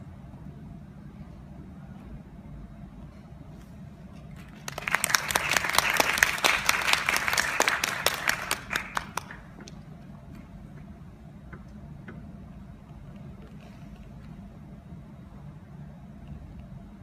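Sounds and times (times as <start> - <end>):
audience applauding: 4.4 - 9.6.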